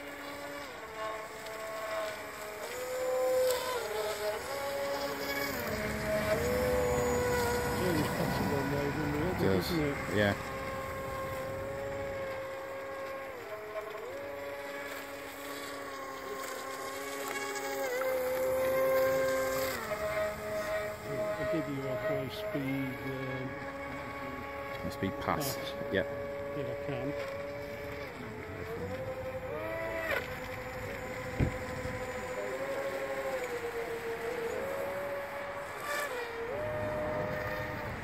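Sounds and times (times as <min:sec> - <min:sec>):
electric motors whining: 0:00.0 - 0:38.0
second lower motor tone: 0:00.0 - 0:38.0.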